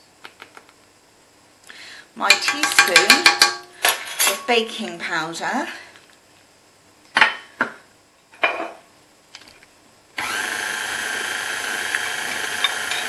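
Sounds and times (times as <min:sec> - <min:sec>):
stand mixer motor whirring: 0:10.2 - 0:13.0.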